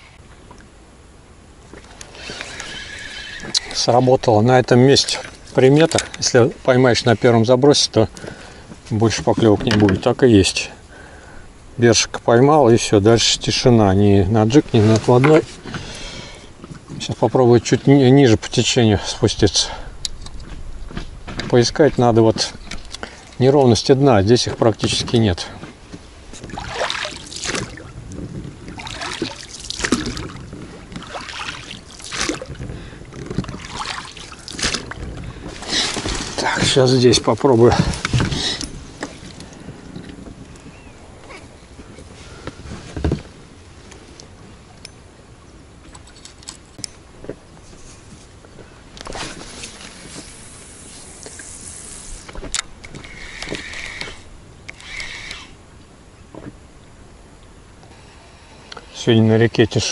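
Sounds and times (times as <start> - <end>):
oars rowing through water: 1.6 - 11.4, 13.2 - 56.9
spinning reel being cranked: 53.0 - 55.6.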